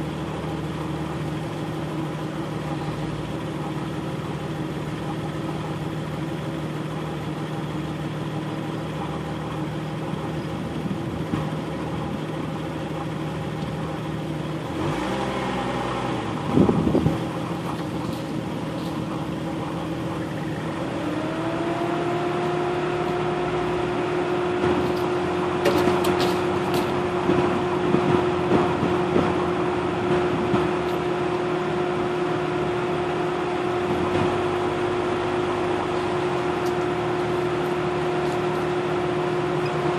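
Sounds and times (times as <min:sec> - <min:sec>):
vehicle engine running: 0:00.0 - 0:39.9
clicks and rattles from bumps: 0:24.8 - 0:27.4.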